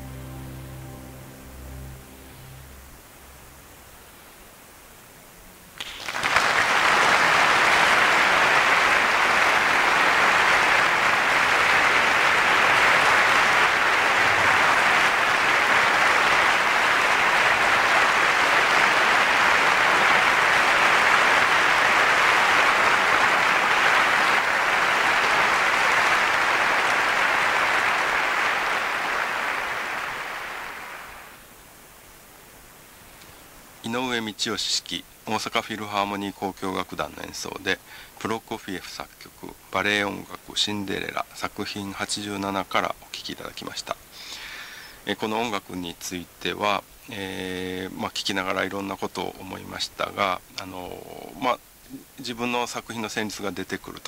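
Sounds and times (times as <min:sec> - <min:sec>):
audience applauding: 0:05.8 - 0:31.4.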